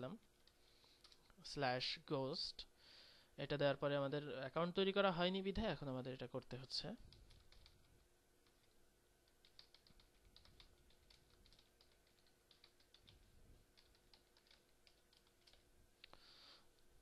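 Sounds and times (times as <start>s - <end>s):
typing on computer keyboard: 0.3s - 1.3s, 7.1s - 15.7s.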